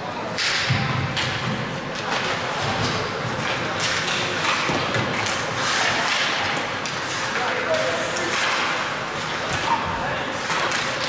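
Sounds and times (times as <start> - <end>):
hockey sticks and puck thuds: 0.3 - 11.0
skates scraping ice: 2.6 - 11.0.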